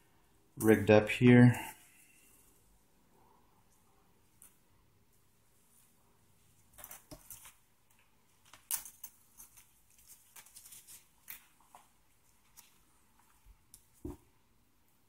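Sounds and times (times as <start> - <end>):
clips clicking and rustling: 6.7 - 11.8.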